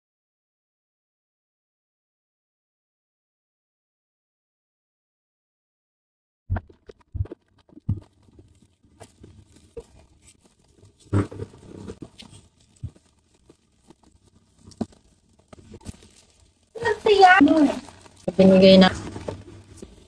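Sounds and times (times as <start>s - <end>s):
plastic wrappers crinkling: 6.9s - 20.0s.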